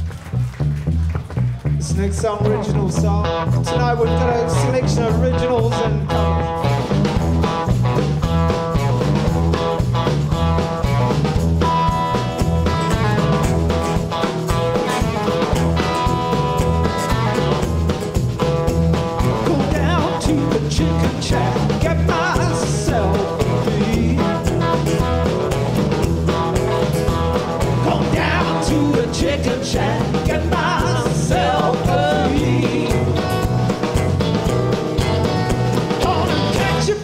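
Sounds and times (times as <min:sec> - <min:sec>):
live blues-rock band playing: 0:00.0 - 0:37.0
person singing: 0:19.3 - 0:24.8, 0:27.7 - 0:33.5, 0:35.9 - 0:37.0.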